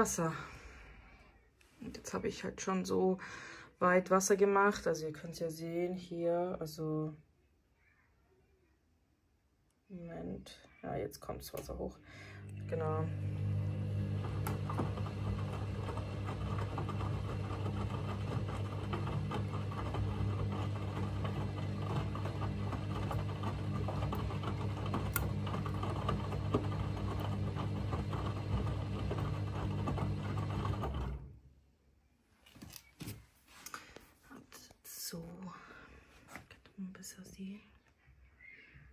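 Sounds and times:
washing machine motor hum: 12.2 - 31.6.

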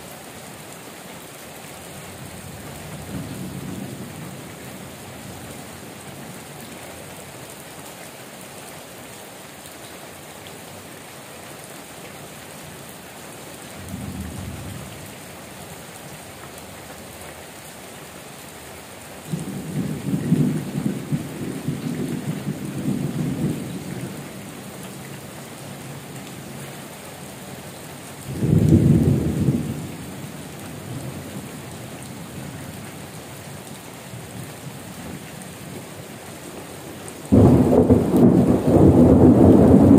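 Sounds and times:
heavy rain on metal roofs: 0.0 - 39.9
thunder rumbling: 37.3 - 39.9.

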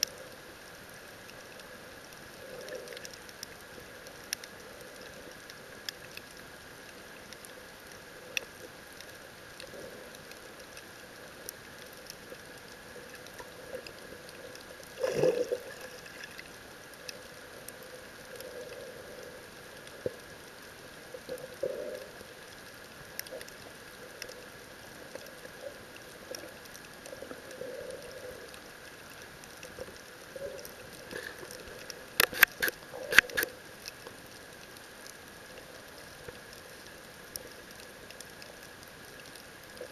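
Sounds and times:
underwater hiss: 12.2 - 20.4.

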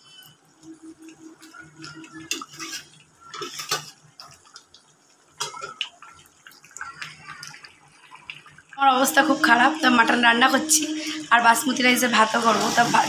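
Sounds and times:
metal spatula scraping a pan: 1.9 - 4.0.

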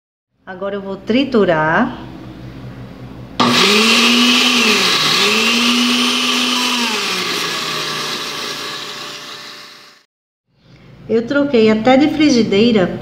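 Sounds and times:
blender grinding crackers: 3.4 - 10.1.

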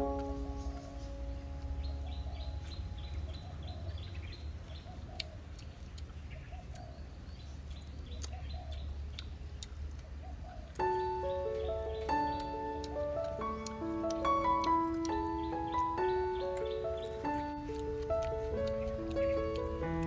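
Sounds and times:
held music chord: 0.0 - 3.4, 10.8 - 20.0
small birds chirping: 0.0 - 20.0.

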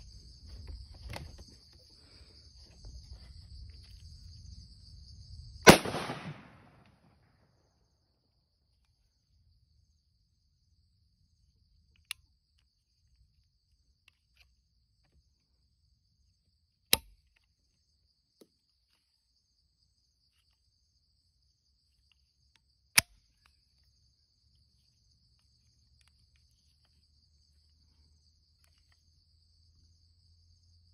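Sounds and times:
insects chirring: 0.0 - 30.9
sharp metallic clicks of gun action: 5.7 - 6.9
gunshot: 5.7 - 7.0.

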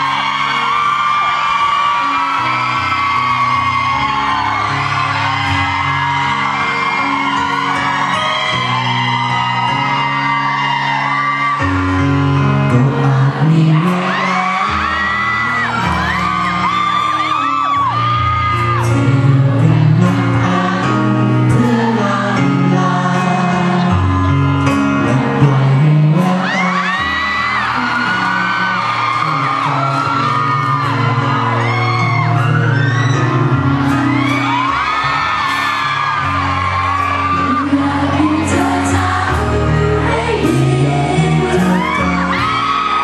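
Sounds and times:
audience whooping and shouting: 0.0 - 22.1, 23.0 - 43.0
pop music accompaniment: 0.0 - 43.0
man singing into microphone: 12.4 - 33.6, 37.0 - 43.0.

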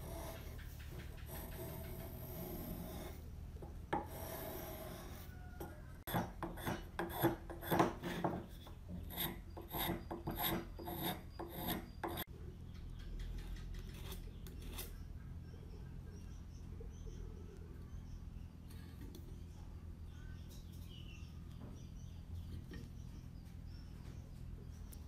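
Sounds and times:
spokeshave scraping wood: 0.0 - 12.3, 13.6 - 15.0.

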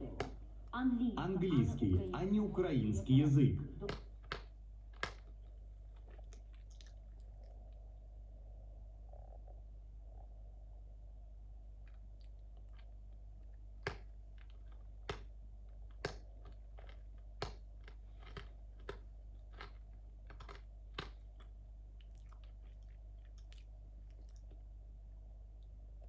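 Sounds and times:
steady low hum: 0.0 - 26.0
sharp clicks and crunches: 3.8 - 7.5, 11.8 - 24.6.

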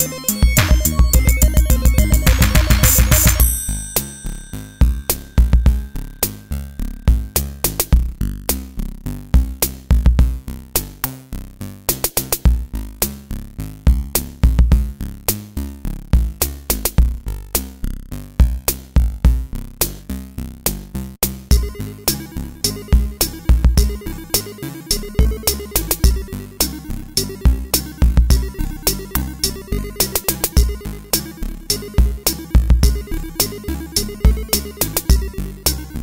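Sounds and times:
drum machine beat: 0.0 - 4.2, 4.8 - 8.2, 9.4 - 10.5, 11.9 - 12.7, 13.9 - 15.0, 16.2 - 17.2, 18.4 - 19.5, 21.2 - 36.0
electronic music: 0.0 - 8.4, 21.4 - 36.0
deep bass: 0.0 - 36.0.

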